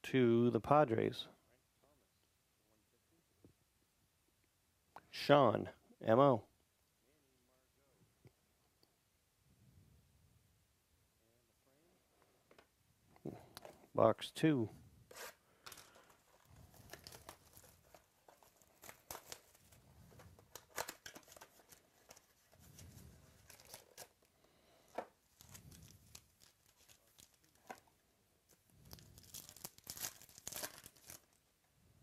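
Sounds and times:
foil wrapper crinkling and tearing: 15.2s - 24.3s, 25.3s - 27.9s, 28.8s - 31.4s.

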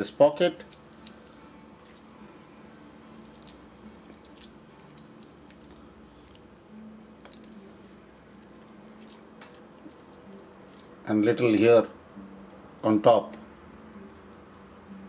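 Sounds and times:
wet squishing of stuffing: 0.6s - 11.1s.

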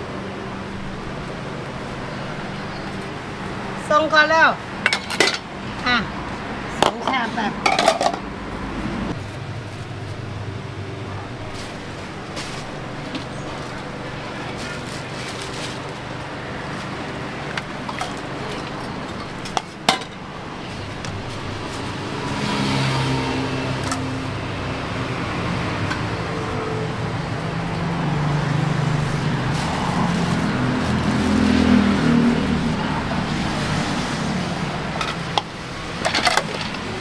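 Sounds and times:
traffic noise: 0.0s - 37.0s
vehicle engine: 0.0s - 37.0s
dishes and utensils clinking: 4.8s - 5.5s, 6.8s - 8.3s, 35.0s - 36.8s.

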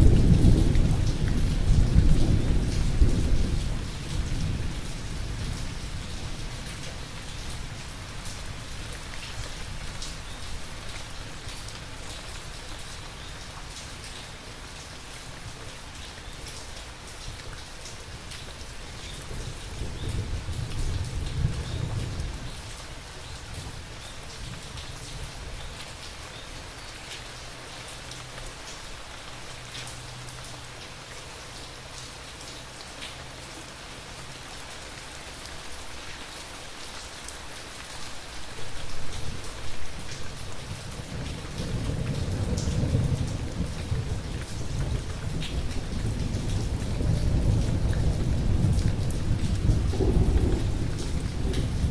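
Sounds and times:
rain pattering: 0.0s - 51.9s
thunder rumbling: 40.9s - 51.9s.

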